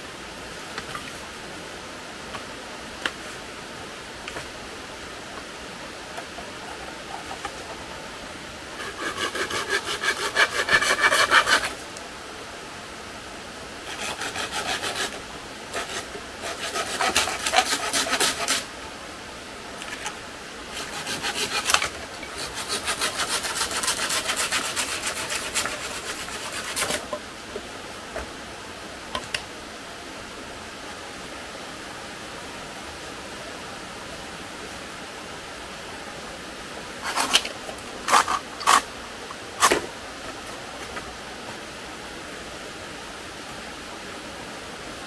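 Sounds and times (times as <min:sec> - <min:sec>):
hand saw cutting wood: 0:06.2 - 0:07.8, 0:08.8 - 0:11.8, 0:13.8 - 0:18.7, 0:20.7 - 0:27.2, 0:37.0 - 0:37.5, 0:38.1 - 0:38.9, 0:39.6 - 0:39.9.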